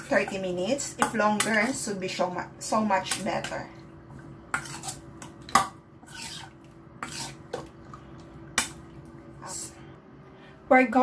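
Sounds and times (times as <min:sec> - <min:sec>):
spoon scraping bowl: 0:04.5 - 0:05.1, 0:06.0 - 0:07.7.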